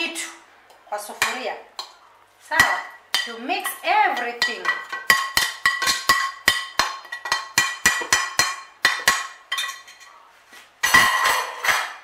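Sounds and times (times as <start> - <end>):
dishware clattering: 4.2 - 10.1, 10.8 - 12.0.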